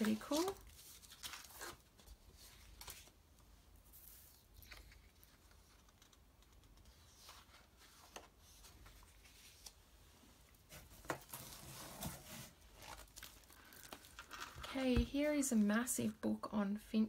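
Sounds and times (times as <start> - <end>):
paper rustling on wooden table: 0.0 - 3.1.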